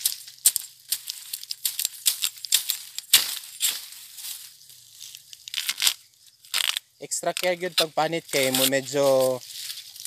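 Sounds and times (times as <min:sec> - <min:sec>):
knife cutting and peeling bamboo sheath: 0:05.0 - 0:09.2.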